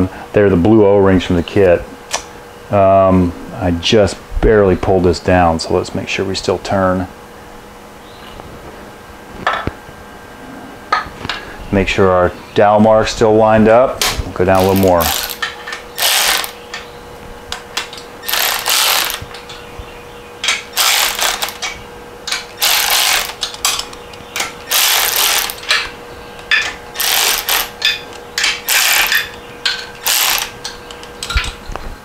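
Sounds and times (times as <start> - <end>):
ratchet wrench clicking: 14.6 - 15.4, 16.0 - 16.6, 18.2 - 19.2, 20.8 - 21.7, 22.3 - 23.5, 24.6 - 25.6, 27.0 - 27.8, 28.6 - 29.4, 30.0 - 30.5.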